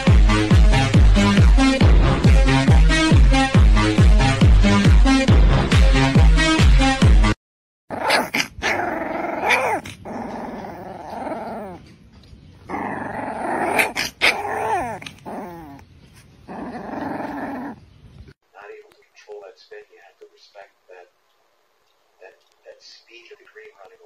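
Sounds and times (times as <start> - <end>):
puppy yelps: 7.9 - 11.8, 12.7 - 17.8
puppy growling: 7.9 - 18.4.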